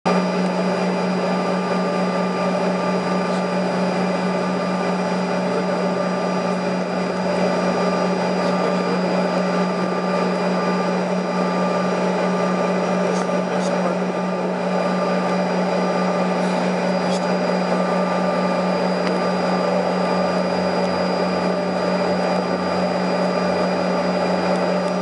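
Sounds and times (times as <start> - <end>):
jet airliner cabin drone: 0.1 - 25.0.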